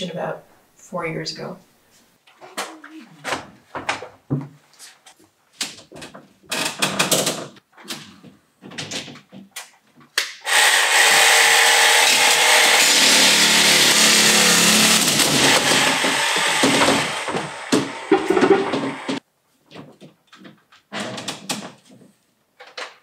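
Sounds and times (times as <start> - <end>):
power tool cutting metal rail: 10.4 - 19.2.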